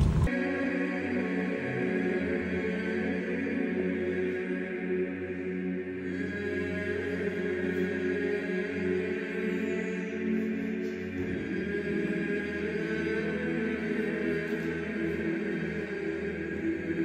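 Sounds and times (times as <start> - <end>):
steady low drone: 0.0 - 0.4
choral chanting: 0.0 - 17.0.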